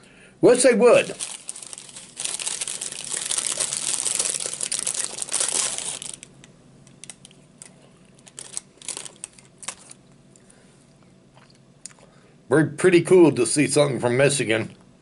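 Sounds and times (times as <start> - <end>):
paper crinkling and rustling: 1.0 - 6.3, 7.0 - 10.0.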